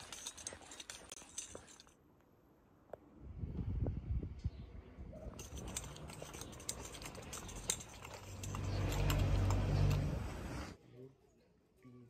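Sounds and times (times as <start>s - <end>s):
street background noise: 0.0s - 12.0s
vehicle engine running: 7.6s - 10.8s.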